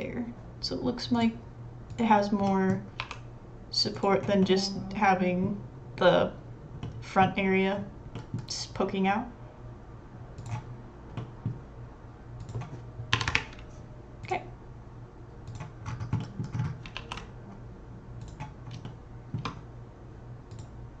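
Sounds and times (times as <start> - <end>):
faint low hum: 0.0 - 21.0
keyboard and mouse clicking: 2.7 - 3.2, 10.4 - 11.3, 12.4 - 13.6, 15.5 - 17.3, 18.2 - 19.6.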